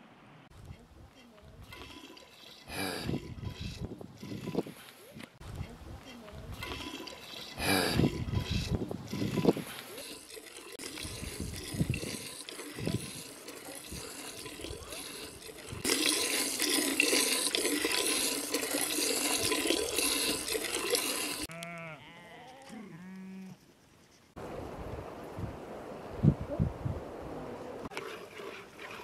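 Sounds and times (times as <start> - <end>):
milk hissing into metal bowl: 6.6 - 21.5.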